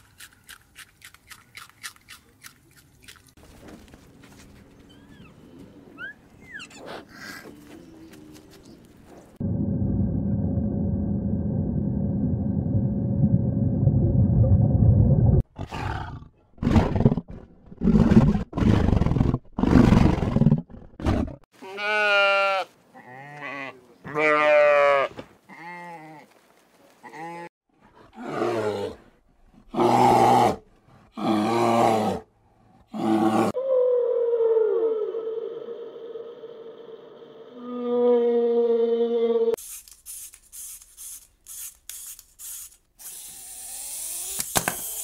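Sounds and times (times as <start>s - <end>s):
low rumble: 9.4s - 15.4s
sheep bleating: 21.6s - 26.3s.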